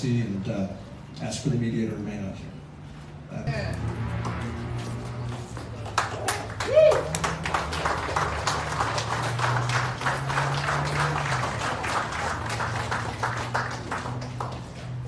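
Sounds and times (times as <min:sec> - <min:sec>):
crowd clapping: 0:04.2 - 0:15.0.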